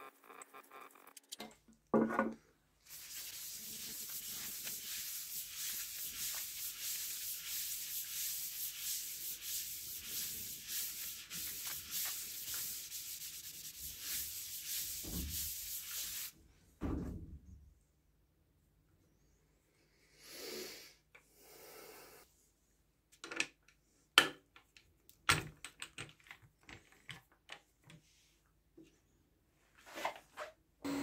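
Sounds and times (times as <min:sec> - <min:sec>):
cloth rubbing spinning wood: 0:02.9 - 0:16.3.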